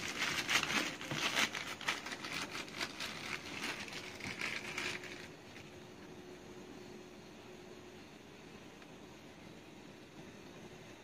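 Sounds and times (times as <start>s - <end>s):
plastic bottle handled: 0.0s - 5.7s.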